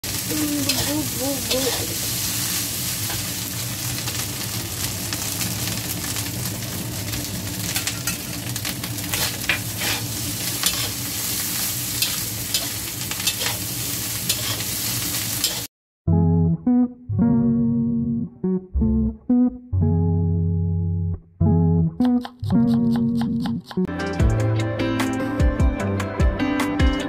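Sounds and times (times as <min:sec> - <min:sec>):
fried rice sizzling in a wok: 0:00.0 - 0:15.7
metal spatula scraping wok: 0:00.1 - 0:03.3, 0:07.6 - 0:15.7.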